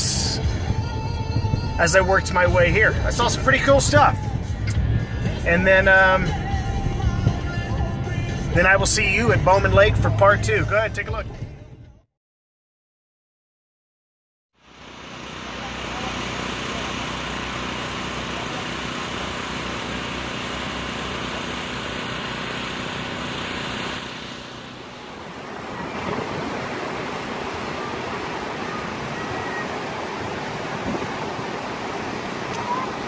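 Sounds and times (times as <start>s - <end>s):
waterfall rushing: 24.1s - 33.0s.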